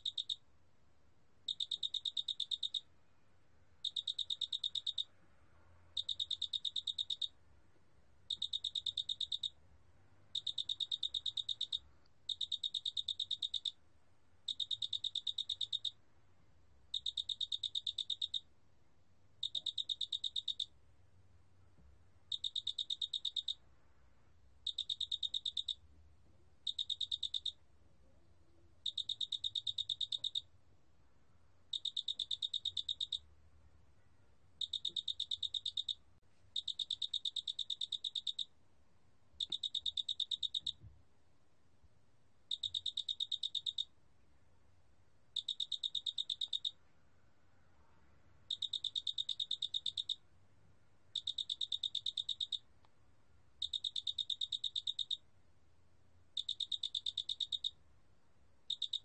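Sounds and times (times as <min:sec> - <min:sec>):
cricket trilling: 0:48.5 - 0:50.2, 0:58.7 - 0:59.0.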